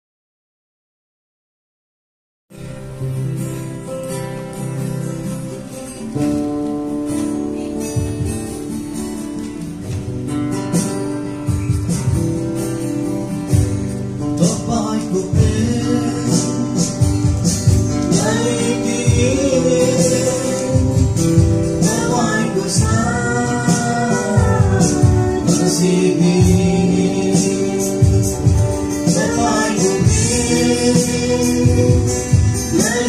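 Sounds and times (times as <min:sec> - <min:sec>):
acoustic guitar strumming: 0:02.5 - 0:33.0
two people singing: 0:14.2 - 0:33.0.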